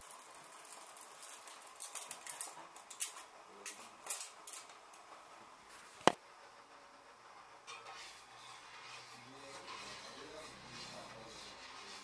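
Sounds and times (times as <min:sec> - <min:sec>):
pellets pattering on metal pan: 0:00.0 - 0:04.6.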